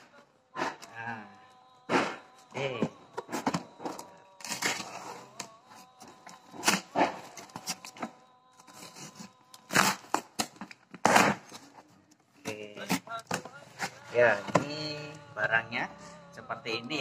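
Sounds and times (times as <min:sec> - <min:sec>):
cardboard box being torn open: 0:08.8 - 0:11.6.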